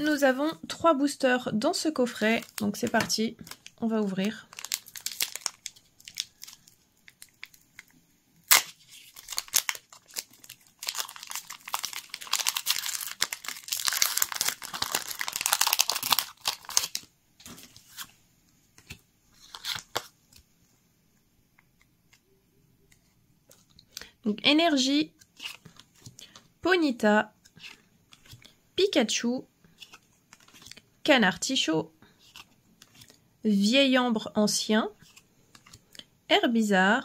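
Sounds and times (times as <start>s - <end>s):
cards rustling and clicking: 2.2s - 20.5s, 25.2s - 26.5s, 27.4s - 28.6s, 29.7s - 30.9s, 32.1s - 33.2s, 35.0s - 36.1s
foil tearing and rustling: 4.5s - 6.6s, 8.5s - 17.0s
foil wrapper snapping: 8.5s - 17.1s.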